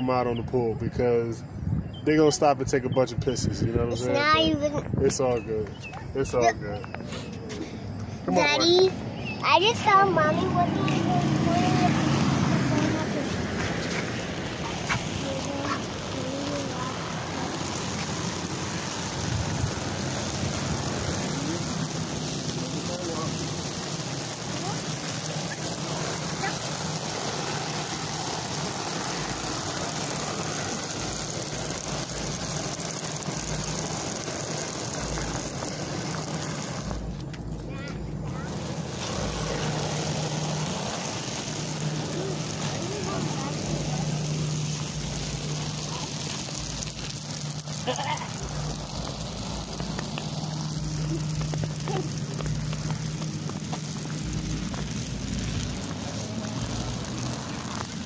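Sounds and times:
metal chain scraping on concrete: 6.1s - 58.0s.

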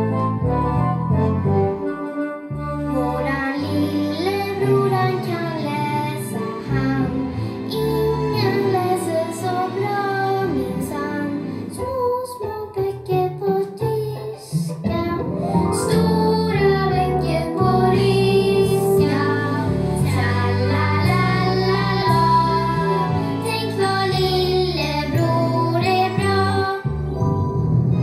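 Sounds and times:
instrumental backing music: 0.0s - 28.0s
child singing: 3.0s - 26.9s.

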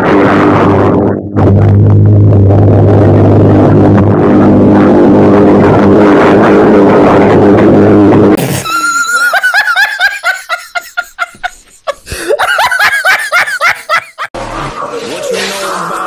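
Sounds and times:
man laughing hard: 8.5s - 14.3s.

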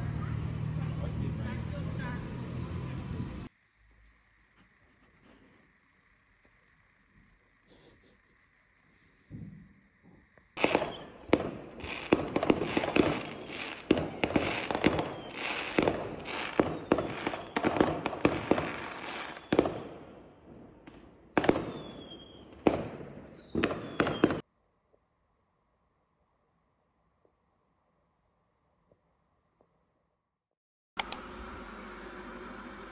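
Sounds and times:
whistling firework shells: 8.8s - 24.5s
fireworks bangs and crackles: 9.2s - 24.4s.

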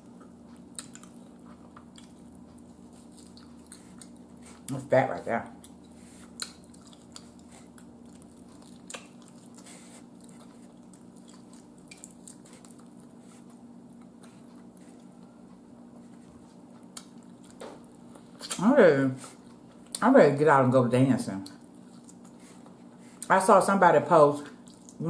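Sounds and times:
quiet chewing: 0.0s - 4.8s, 5.5s - 18.6s, 21.4s - 23.3s, 24.5s - 25.0s
steady low hum: 0.0s - 25.0s.

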